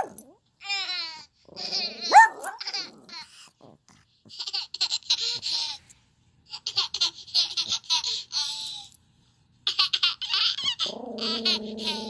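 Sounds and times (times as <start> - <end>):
baby giggling through laptop speakers: 4.3 - 5.8, 6.5 - 8.6, 9.7 - 12.0.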